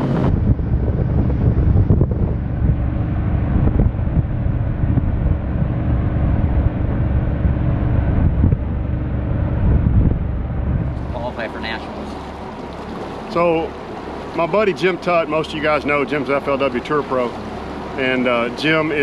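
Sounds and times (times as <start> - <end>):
wind rushing over microphone: 0.0 - 14.4
boat hull noise: 0.0 - 19.0
outboard engine drone: 0.0 - 19.0.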